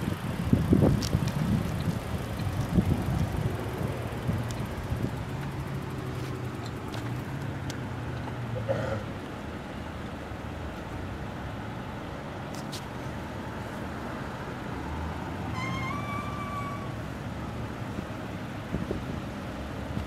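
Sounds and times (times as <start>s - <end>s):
low rumble of vehicles: 0.0s - 20.0s
brief high squeal: 15.5s - 17.0s.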